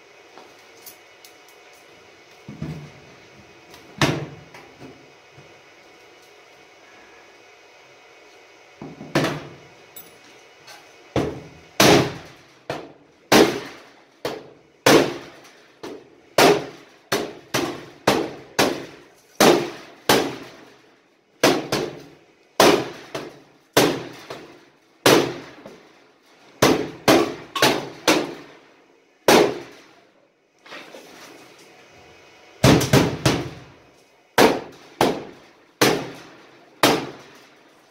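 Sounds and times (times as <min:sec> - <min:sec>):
hammer striking steel: 0:34.4 - 0:36.2.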